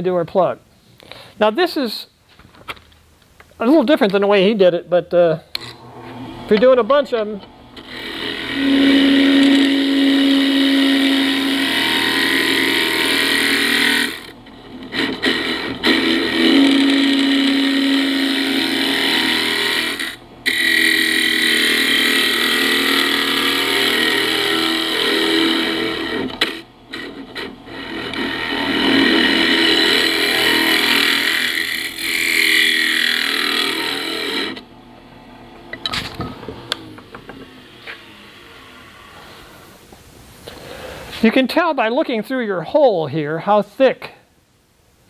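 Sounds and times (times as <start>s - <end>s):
lathe tool cutting wood: 5.6s - 39.7s.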